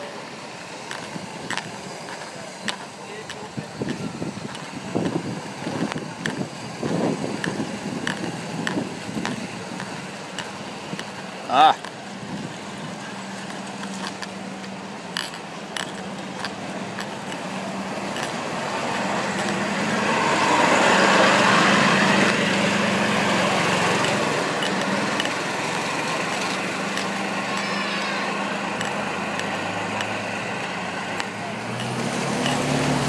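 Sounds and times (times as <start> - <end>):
vehicle engine hum: 0.0 - 33.0
tyre hiss on wet road: 16.2 - 31.1.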